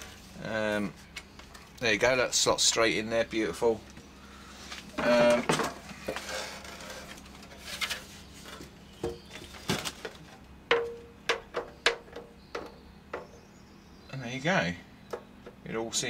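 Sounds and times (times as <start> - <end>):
plastic parts knocking and tapping: 8.5 - 13.4, 15.1 - 15.6.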